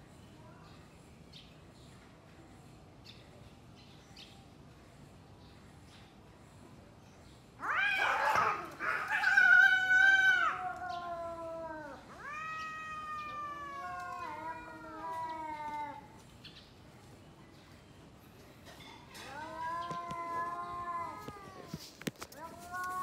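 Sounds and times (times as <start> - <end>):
cat yowling: 7.6 - 16.2, 19.2 - 23.0.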